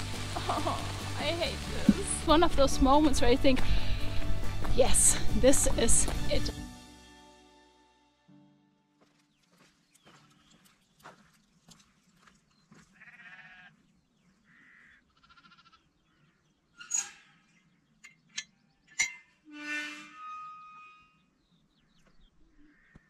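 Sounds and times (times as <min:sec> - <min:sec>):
short animal calls: 0:14.5 - 0:15.8.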